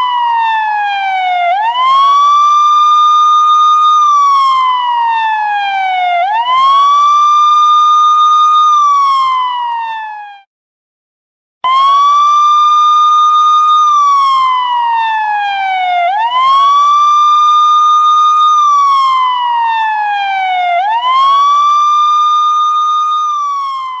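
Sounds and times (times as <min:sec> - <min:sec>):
police siren wailing: 0:00.0 - 0:10.5, 0:11.6 - 0:24.0.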